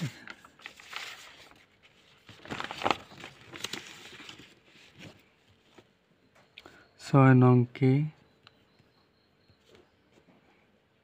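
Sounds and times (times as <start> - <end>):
paper page rustling: 0.0 - 5.9.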